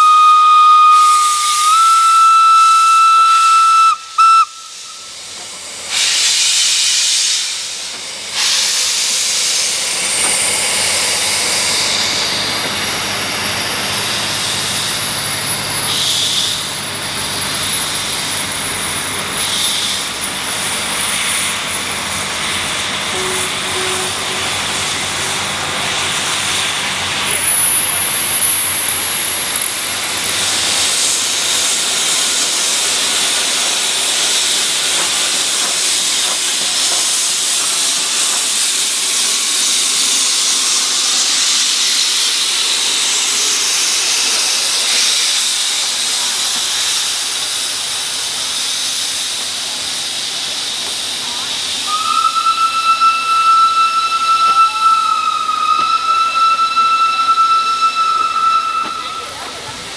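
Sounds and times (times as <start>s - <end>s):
steam whistle: 0.0s - 5.2s, 23.0s - 25.7s, 27.3s - 30.3s, 51.8s - 59.7s
steam locomotive hissing: 0.0s - 59.9s.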